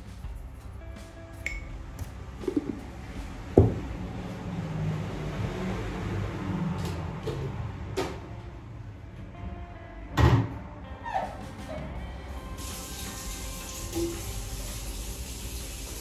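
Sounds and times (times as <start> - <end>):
glass jar knocking: 2.4 - 2.8.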